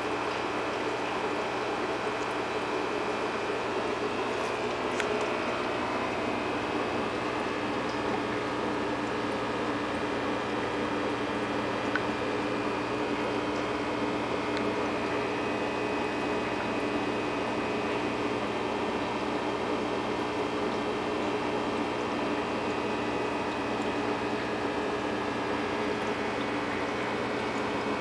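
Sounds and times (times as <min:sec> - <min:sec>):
aquarium air pump hum and hiss: 0:00.0 - 0:28.0
faint water bubbling: 0:00.1 - 0:28.0
small click: 0:04.4 - 0:05.3.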